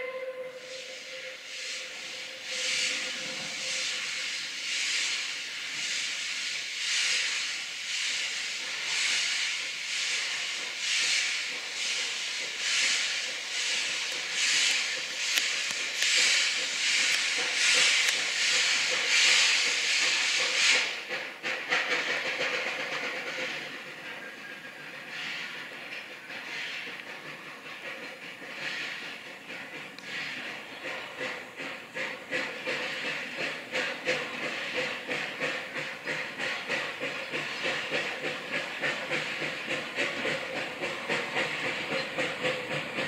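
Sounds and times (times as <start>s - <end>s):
steam whistle: 0.0s - 4.0s
steam hissing: 0.0s - 43.0s
steam locomotive chuffing: 0.0s - 43.0s.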